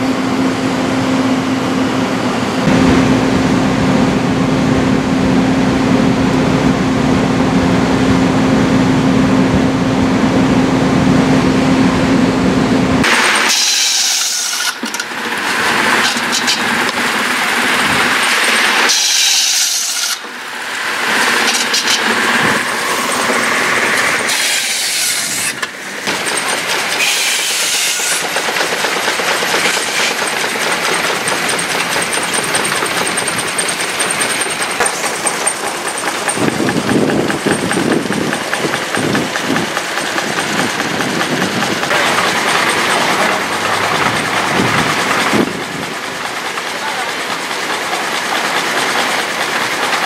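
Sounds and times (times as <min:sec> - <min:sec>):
machinery clattering: 0:13.0 - 0:50.0.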